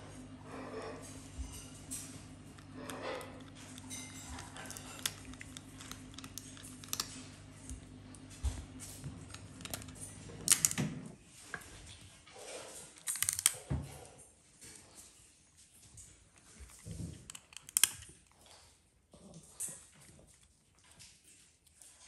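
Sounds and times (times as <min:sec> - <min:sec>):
raccoon chewing a nut: 0:00.4 - 0:10.8, 0:15.7 - 0:22.0.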